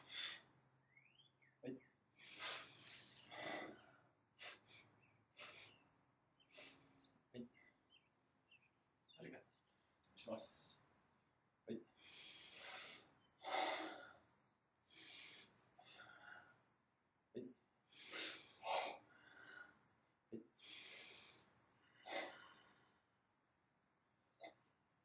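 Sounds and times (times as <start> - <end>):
forceful hissing breaths: 0.0 - 0.4, 2.2 - 3.8, 4.4 - 5.8, 12.0 - 14.1, 14.9 - 16.4, 17.9 - 19.7, 20.6 - 22.6.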